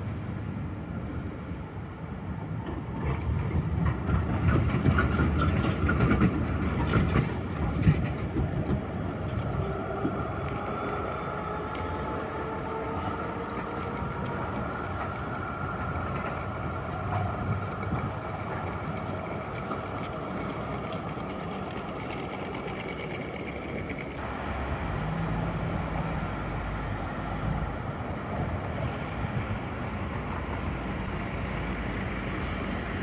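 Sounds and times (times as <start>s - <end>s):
distant tram rumble: 0.0s - 33.0s
street traffic noise: 0.0s - 33.0s.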